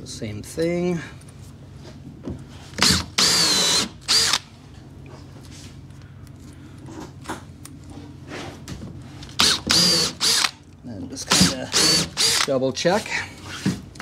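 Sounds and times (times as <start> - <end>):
cordless drill running: 2.8 - 4.4, 9.4 - 10.6, 11.3 - 12.5.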